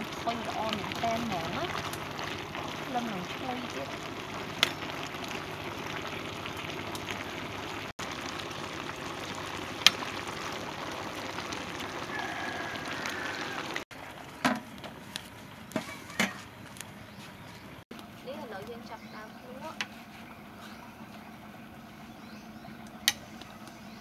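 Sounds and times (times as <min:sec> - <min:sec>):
stew bubbling: 0:00.0 - 0:16.3, 0:17.9 - 0:24.0.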